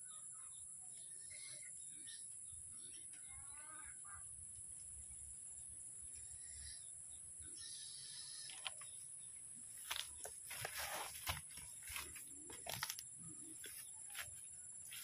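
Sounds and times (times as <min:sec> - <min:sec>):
footsteps in dry leaves: 0:09.8 - 0:15.0.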